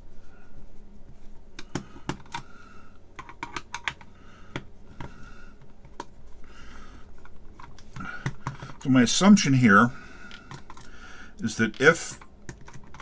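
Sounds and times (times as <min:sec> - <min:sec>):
hard plastic clicks and rattles: 0:03.2 - 0:05.1.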